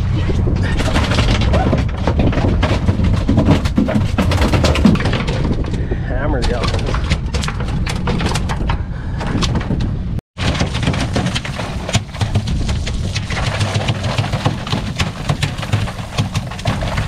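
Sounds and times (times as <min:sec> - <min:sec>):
hose water splashing: 0:10.4 - 0:17.0
boat engine rumble: 0:10.8 - 0:17.0.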